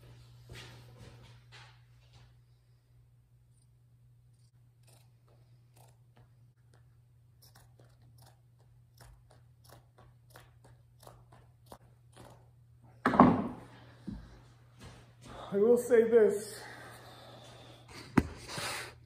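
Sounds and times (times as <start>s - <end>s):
shears snipping fabric: 4.3s - 12.5s.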